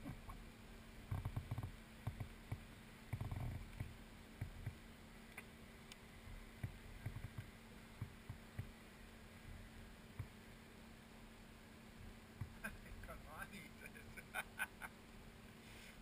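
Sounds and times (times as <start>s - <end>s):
faint steady hum: 0.0s - 16.0s
low thumps and light knocks: 1.1s - 4.8s, 6.3s - 8.8s, 9.4s - 10.4s.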